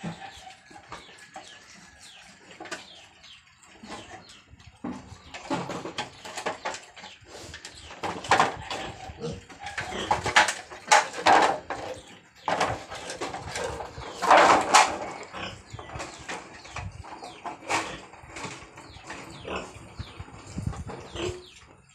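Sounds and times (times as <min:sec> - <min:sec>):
piglets chewing and slurping: 0:00.0 - 0:06.2.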